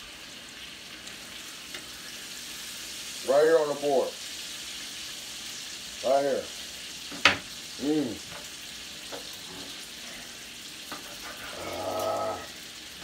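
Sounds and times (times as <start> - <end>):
steaks sizzling in a skillet: 0.0 - 13.0
short vocal sound: 11.5 - 12.5
person humming: 11.5 - 12.6.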